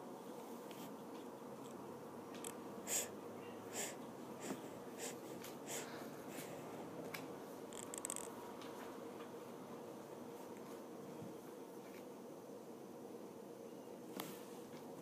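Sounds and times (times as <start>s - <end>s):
faint room hum: 0.0s - 15.0s.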